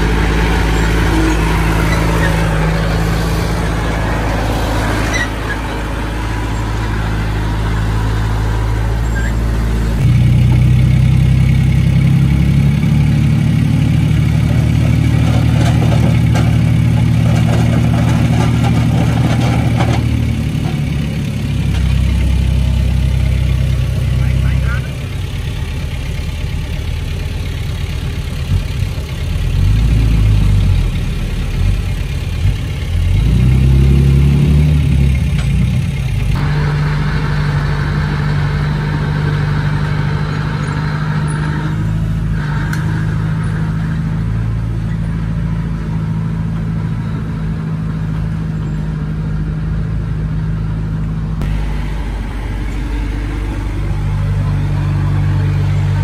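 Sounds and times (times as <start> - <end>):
bulldozer diesel engine running: 0.0 - 56.0.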